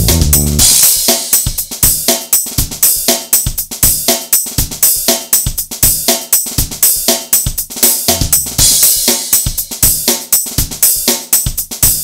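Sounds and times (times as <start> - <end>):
drum kit beat: 0.0 - 12.0.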